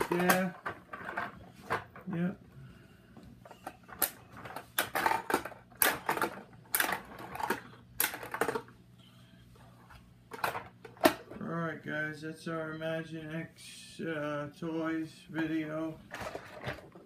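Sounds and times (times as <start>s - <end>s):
plastic toys clicking on wooden floor: 3.6s - 8.7s.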